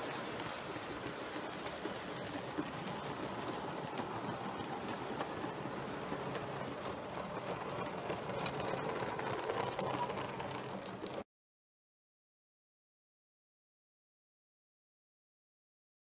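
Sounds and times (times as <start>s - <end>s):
model train rolling rumble: 0.0s - 11.2s
wheels clicking over rail joints: 0.0s - 11.2s.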